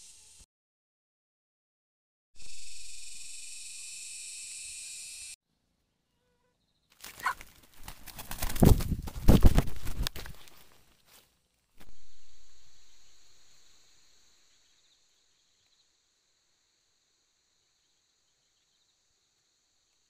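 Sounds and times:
high insect drone: 2.4s - 5.4s, 11.8s - 20.0s.

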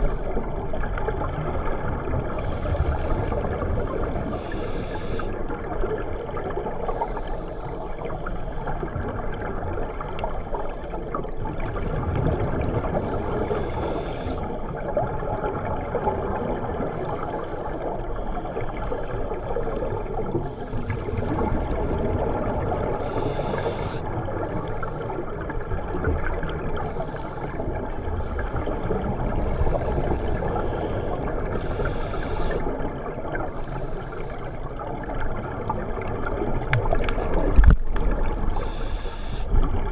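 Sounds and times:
regulator hiss: 4.2s - 5.3s, 13.4s - 14.5s, 23.0s - 24.1s, 30.6s - 32.6s, 38.5s - 39.6s
underwater regulator bubbling: 11.6s - 39.9s.

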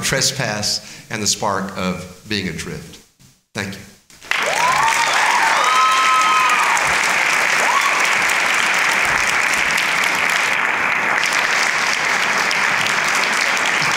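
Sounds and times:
audience applauding: 4.2s - 13.9s
person whooping: 4.4s - 7.0s, 7.6s - 8.2s.

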